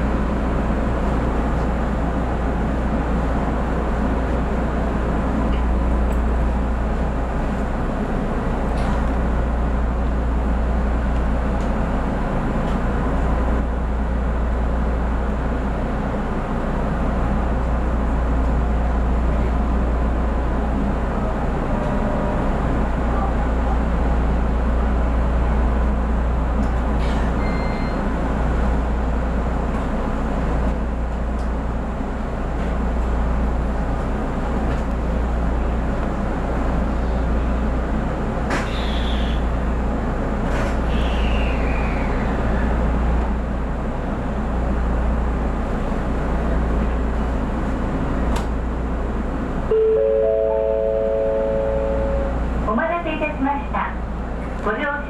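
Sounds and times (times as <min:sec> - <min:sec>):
train equipment humming: 0:00.0 - 0:55.0.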